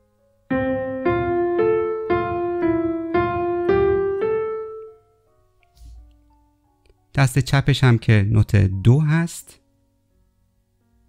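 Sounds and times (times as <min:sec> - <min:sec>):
piano notes: 0:00.0 - 0:07.1.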